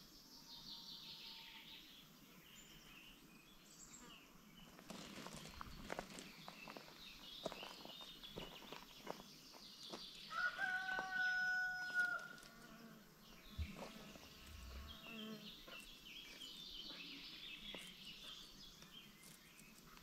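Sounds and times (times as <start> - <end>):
rooster crowing: 10.3 - 12.7.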